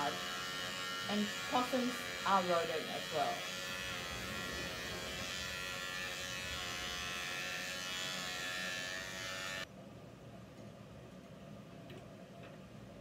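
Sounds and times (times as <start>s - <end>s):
electric clippers buzzing: 0.0s - 9.7s.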